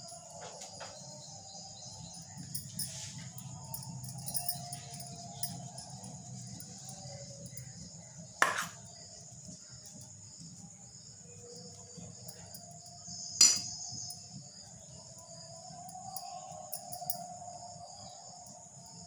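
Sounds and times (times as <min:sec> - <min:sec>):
metal spoon clinking on bowl: 0:13.4 - 0:13.8.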